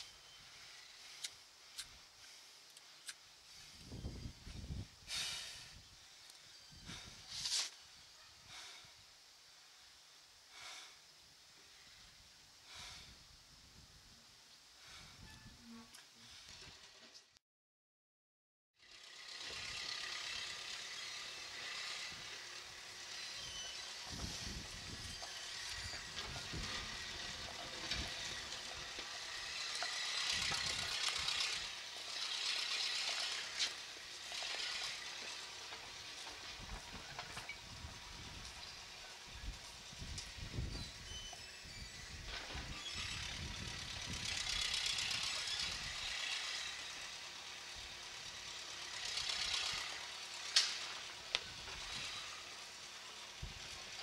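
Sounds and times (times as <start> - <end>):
steady high hiss: 0.0 - 15.3
wind rumble on microphone: 3.6 - 6.0, 6.7 - 7.4, 14.8 - 15.7, 24.0 - 29.0, 36.4 - 46.2, 53.4 - 53.8.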